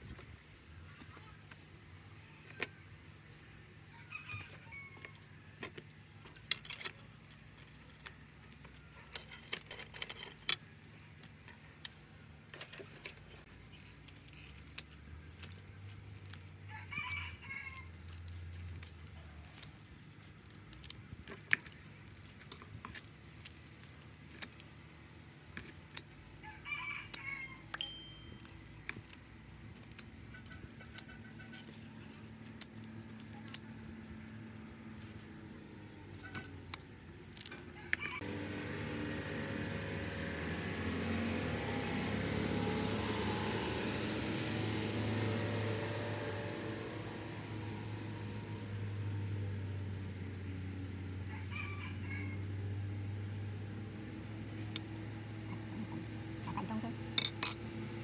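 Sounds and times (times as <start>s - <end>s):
rooster crowing: 3.9s - 5.3s, 16.7s - 18.0s, 26.4s - 28.0s, 37.5s - 38.6s, 51.2s - 52.6s.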